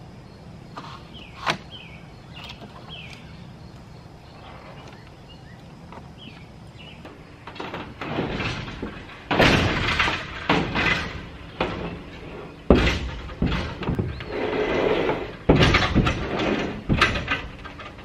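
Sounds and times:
wood knocking on metal roof: 7.5s - 14.2s, 15.4s - 18.0s.

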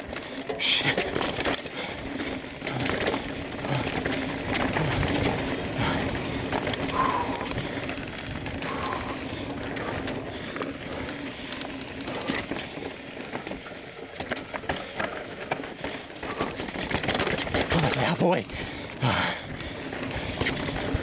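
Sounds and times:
bike clicks and knocks: 0.0s - 21.0s
tyre and trail noise: 0.0s - 21.0s
bike freehub ratchet buzz: 12.8s - 15.7s.

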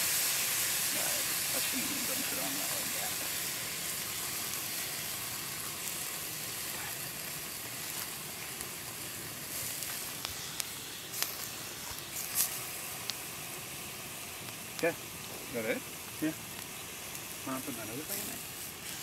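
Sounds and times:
food sizzling in a pot: 0.0s - 19.0s.

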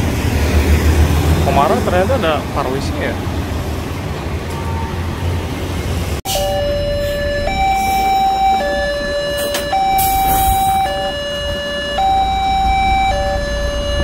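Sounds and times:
road traffic: 0.0s - 14.0s
level crossing two-tone alarm: 6.3s - 14.0s.

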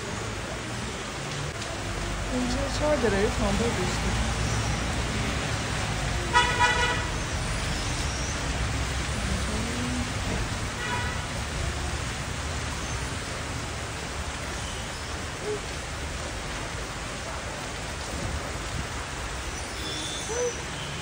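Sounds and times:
steady rain falling: 0.0s - 21.0s.

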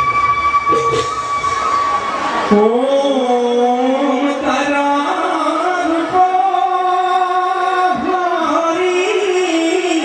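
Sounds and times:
person singing long held notes: 2.4s - 10.0s.

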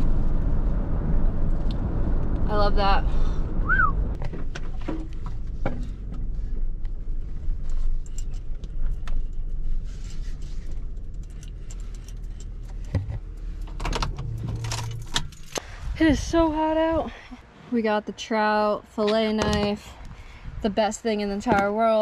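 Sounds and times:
truck engine and road noise: 0.0s - 22.0s
small rattles and clicks: 7.6s - 15.6s.

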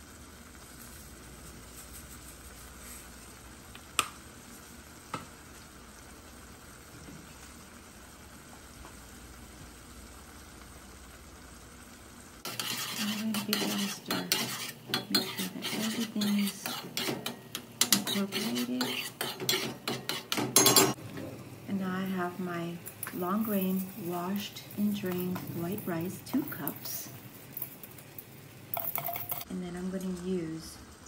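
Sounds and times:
faint sizzle in pot: 0.0s - 31.0s
metal spoon scraping pot: 12.4s - 21.0s.

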